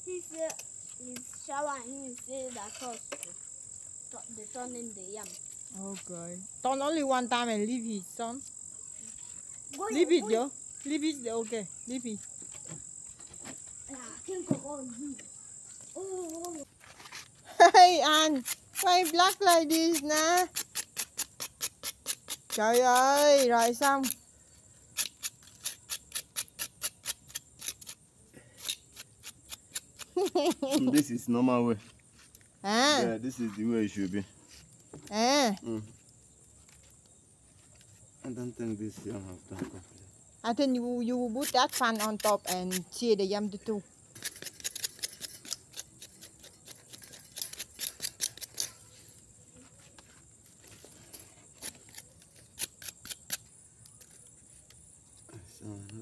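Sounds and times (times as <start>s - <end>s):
knife scraping roasted yam: 18.1s - 24.2s, 25.0s - 31.2s, 41.4s - 43.0s, 44.1s - 48.9s, 51.1s - 54.2s
knife crunching through charred skin: 28.6s - 31.0s, 44.2s - 48.9s, 51.5s - 54.3s.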